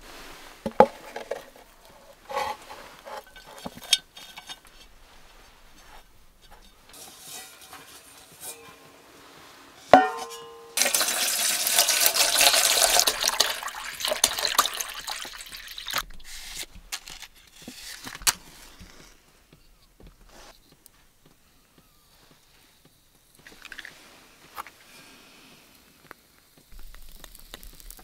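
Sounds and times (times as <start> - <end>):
water pouring into metal pot: 10.8 - 16.1.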